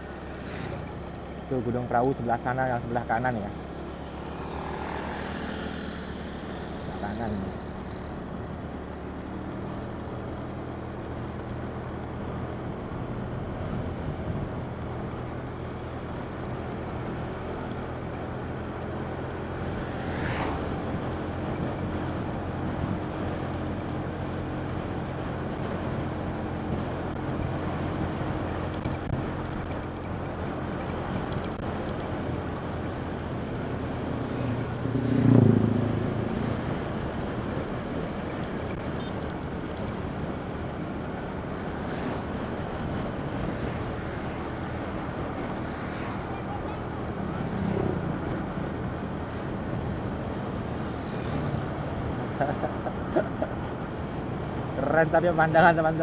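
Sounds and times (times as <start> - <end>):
wind buffeting microphone: 12.8 - 15.0.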